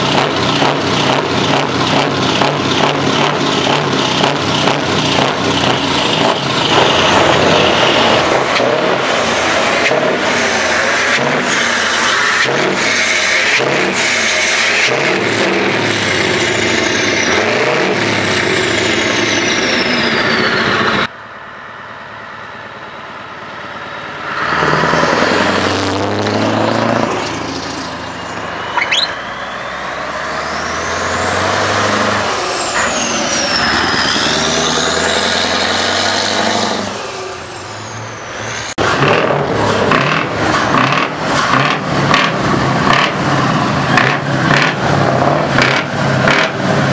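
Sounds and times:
diesel trucks revving: 0:00.0 - 0:46.9
high whistle: 0:28.1 - 0:29.8.

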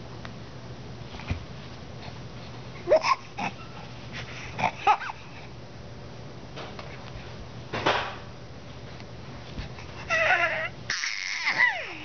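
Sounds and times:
baby squealing: 0:10.1 - 0:12.0.

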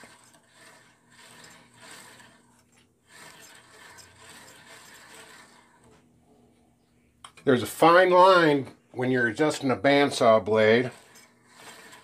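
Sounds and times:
bandsaw blade faint rubbing: 0:00.0 - 0:06.1, 0:10.2 - 0:12.0.

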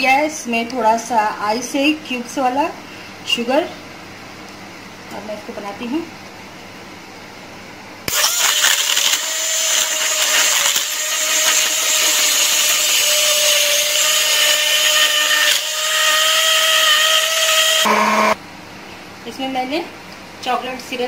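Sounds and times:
hand blender motor running: 0:08.1 - 0:18.4.

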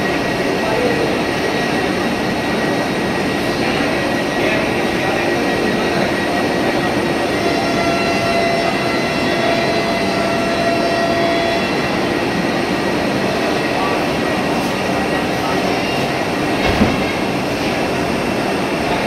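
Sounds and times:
electric train whirring and humming: 0:00.0 - 0:19.0.

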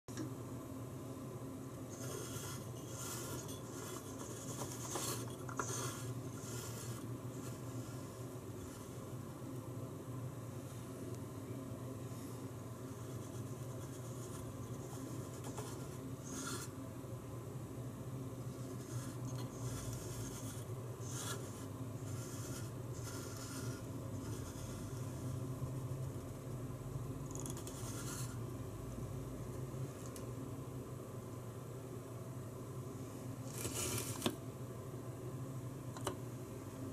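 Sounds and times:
steady low hum: 0:00.1 - 0:36.9
wooden dial discs scraping: 0:01.9 - 0:09.2, 0:12.9 - 0:16.8, 0:18.5 - 0:26.3, 0:27.3 - 0:28.4, 0:33.5 - 0:34.4.

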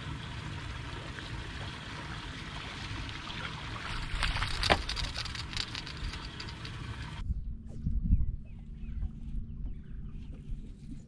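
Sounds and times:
wind rumble on microphone: 0:03.8 - 0:11.0
clatter of clicks and knocks: 0:04.2 - 0:06.8.

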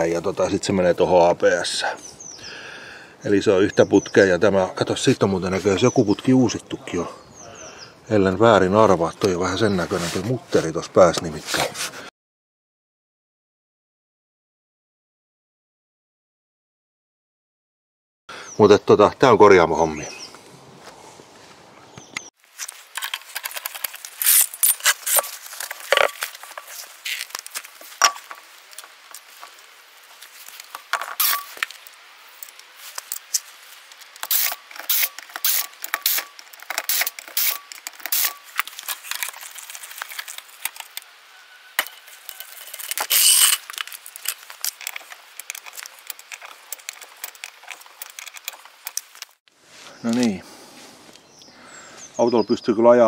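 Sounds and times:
metallic tool clicks and clinks: 0:30.9 - 0:31.8, 0:34.2 - 0:38.6, 0:43.1 - 0:49.2.

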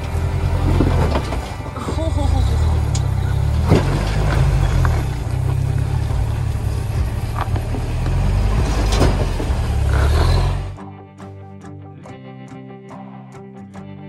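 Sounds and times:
truck engine under load: 0:00.0 - 0:10.8.

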